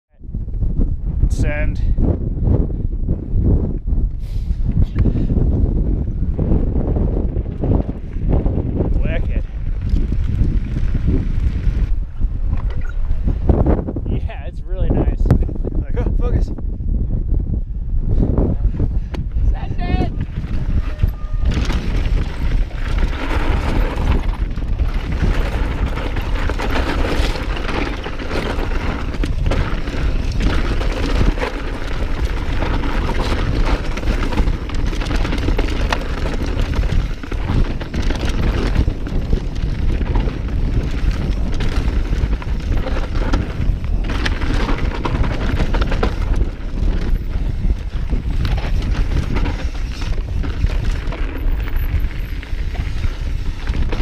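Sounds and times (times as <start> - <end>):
wind buffeting microphone: 0.1 - 54.0
bike tyres rumbling on dirt and rock: 0.2 - 54.0
bike knocks and rattles: 20.2 - 54.0.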